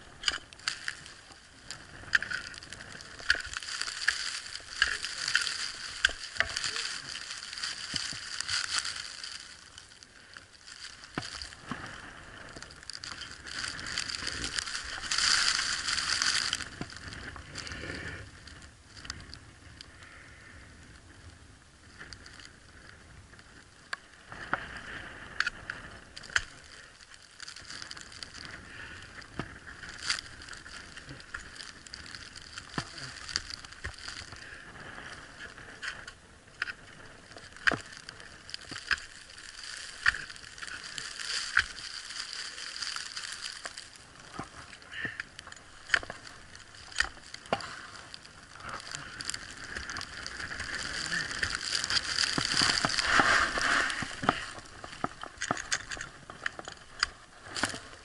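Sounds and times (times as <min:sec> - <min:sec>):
ice axes striking ice: 0:02.1 - 0:09.5, 0:29.0 - 0:34.3, 0:36.6 - 0:48.0.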